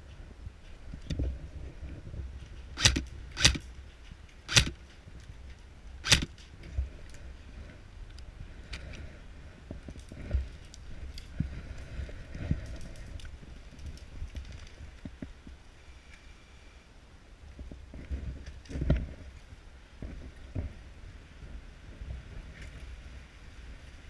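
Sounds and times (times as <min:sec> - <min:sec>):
airsoft rifle shots: 0:02.8 - 0:03.6, 0:04.5 - 0:04.8, 0:06.0 - 0:06.4.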